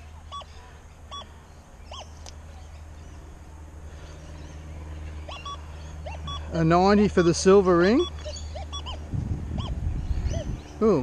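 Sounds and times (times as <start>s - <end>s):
low steady hum: 0.0s - 11.0s
rising and falling detector tone: 5.2s - 11.0s
metal detector beeps: 5.3s - 9.0s.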